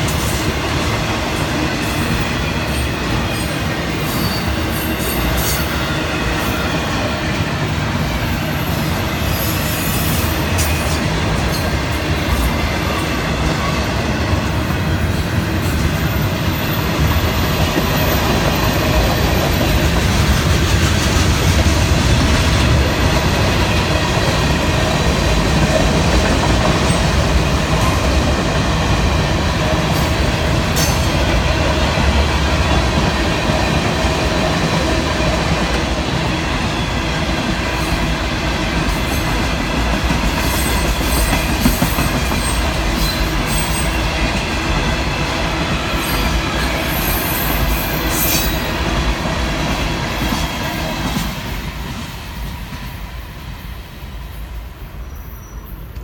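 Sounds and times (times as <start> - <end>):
train wheels rumbling on rails: 0.0 - 56.0
high wheel squeal: 2.0 - 7.1, 40.4 - 44.2, 45.9 - 48.8, 55.0 - 55.9.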